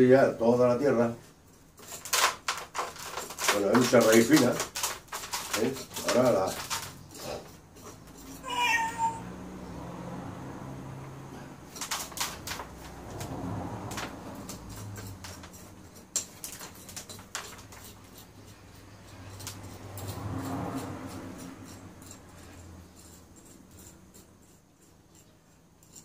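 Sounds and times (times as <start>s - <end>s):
rake scratching soil from roots: 1.8s - 9.2s, 12.0s - 26.0s
cat meowing: 8.4s - 9.5s.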